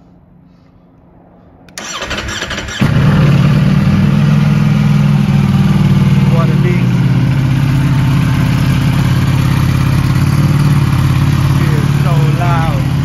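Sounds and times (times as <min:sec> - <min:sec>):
motorcycle starter cranking: 0:01.8 - 0:03.1
motorcycle engine idling: 0:02.7 - 0:13.0.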